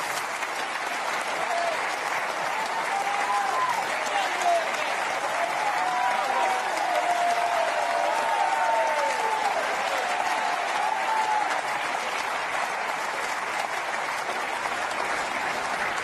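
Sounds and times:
audience applauding: 0.0 - 16.0
crowd calls: 1.4 - 12.2.

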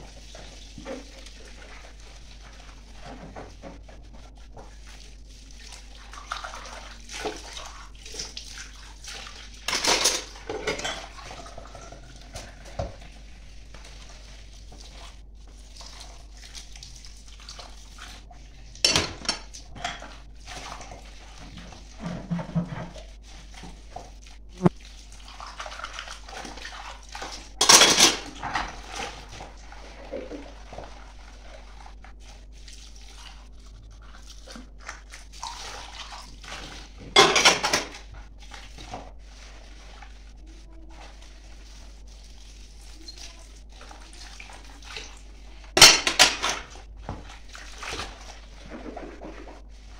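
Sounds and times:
tap water splashing: 2.9 - 5.0, 11.8 - 18.2, 44.6 - 49.6
dishes clinking and clattering: 9.7 - 13.0, 18.8 - 20.2, 27.6 - 28.9, 37.0 - 38.0, 45.8 - 46.8.

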